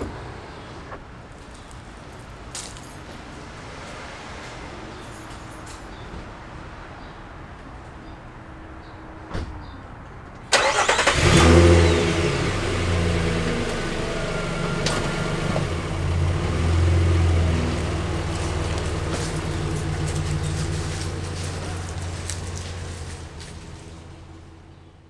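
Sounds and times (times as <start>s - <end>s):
pickup engine starting and pulling away: 10.5s - 25.0s.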